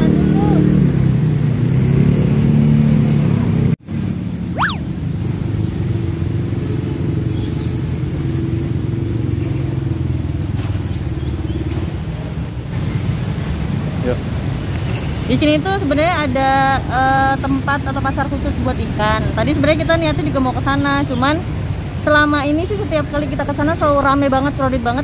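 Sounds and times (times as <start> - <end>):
motorcycle and street traffic: 0.0 - 25.0
quick whistle-like sweep: 4.6 - 4.9.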